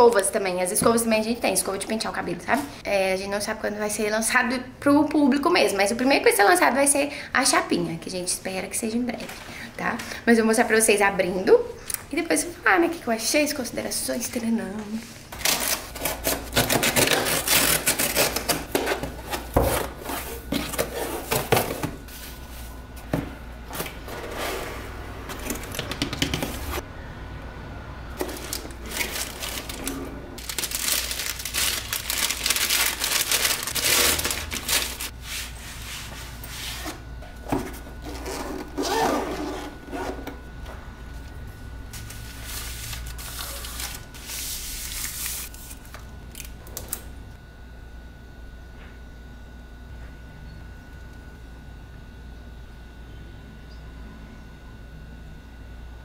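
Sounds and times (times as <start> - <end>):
packaging rustling and scraping: 15.0 - 26.8, 28.2 - 40.4, 41.9 - 46.5.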